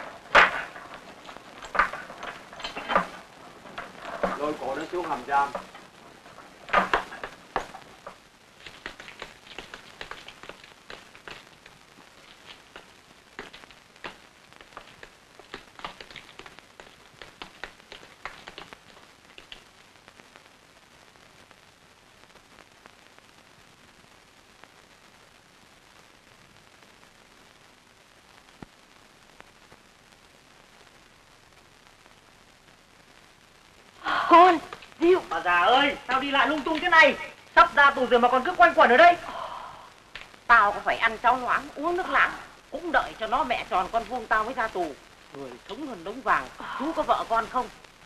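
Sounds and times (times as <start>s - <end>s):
small clicks and knocks: 0.0s - 19.7s
faint steady hiss: 0.0s - 48.0s.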